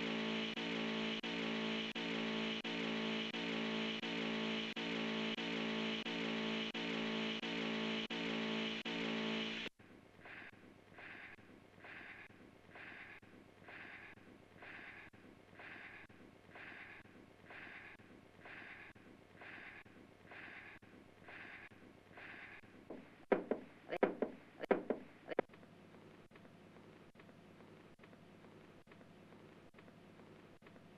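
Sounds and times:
heavy breathing: 0:10.1 - 0:23.3
sharp knocks: 0:22.9 - 0:25.2.

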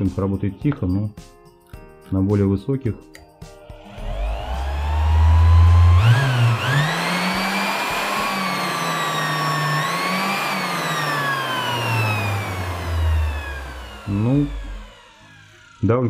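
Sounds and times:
orbital sander motor whine: 0:03.7 - 0:16.0.

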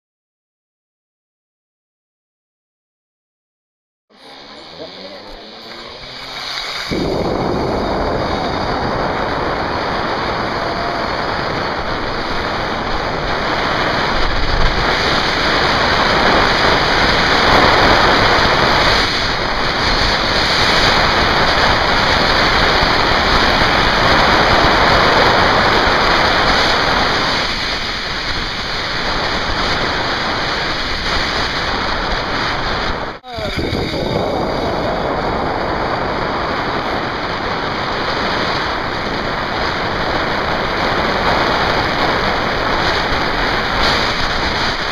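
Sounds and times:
wind rushing over microphone: 0:04.1 - 0:44.9
pulleys running along cable: 0:04.2 - 0:23.8.

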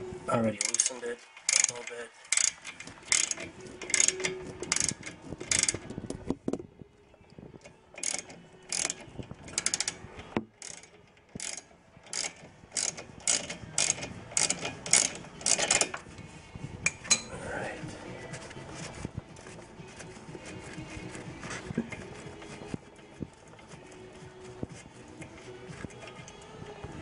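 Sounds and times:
socket ratchet clicking: 0:00.6 - 0:05.9, 0:08.0 - 0:16.0.

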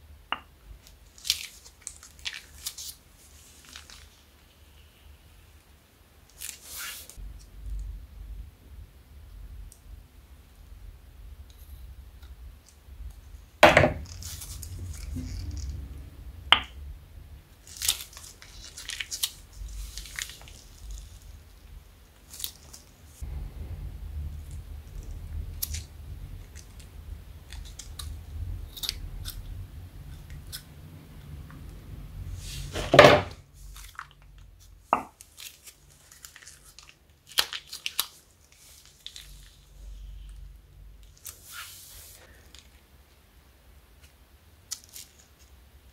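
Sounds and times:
plastic bags crinkling: 0:01.1 - 0:04.2, 0:17.6 - 0:21.6, 0:35.2 - 0:39.7.

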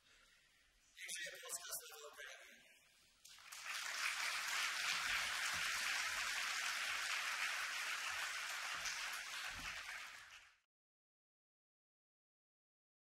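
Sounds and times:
large audience applauding: 0:03.3 - 0:10.6.

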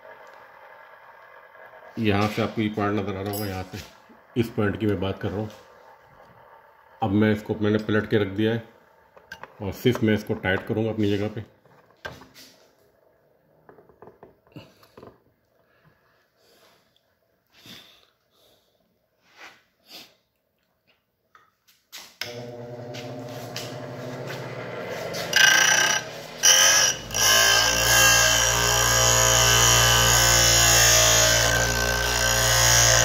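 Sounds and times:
bench grinder humming: 0:00.0 - 0:15.1, 0:22.2 - 0:33.0
drill bit grinding on wheel: 0:22.3 - 0:33.0.

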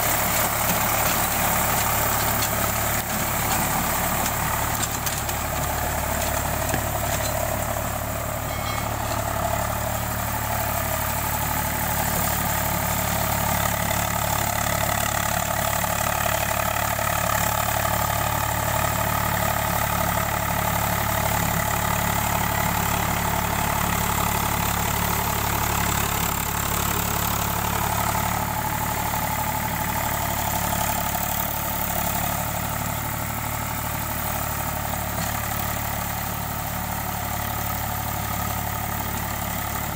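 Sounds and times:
rotavator churning wet mud: 0:00.0 - 0:07.8
tractor diesel engine running: 0:00.0 - 0:39.9.

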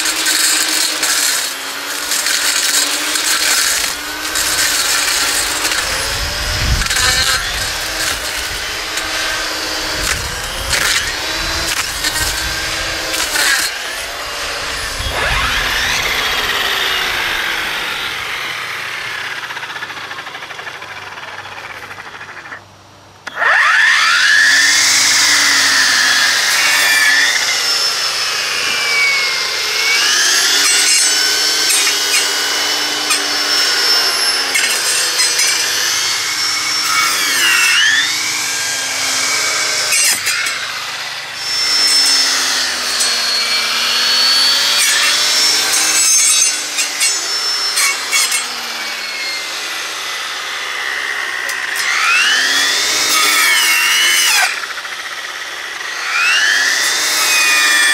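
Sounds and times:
blade sawing through wood: 0:00.0 - 0:22.6, 0:23.3 - 0:57.9
brushcutter whining: 0:00.0 - 0:57.9.

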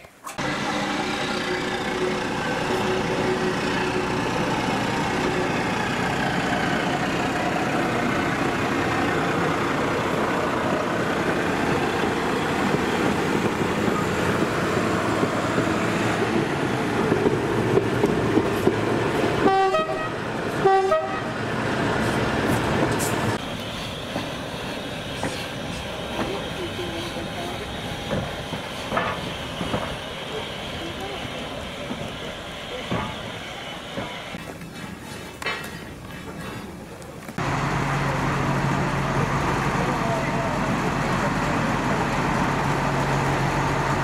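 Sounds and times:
diesel locomotive engine: 0:00.0 - 0:44.0
train wheels rumbling on track: 0:00.3 - 0:44.0
locomotive horn toots: 0:19.4 - 0:21.4.

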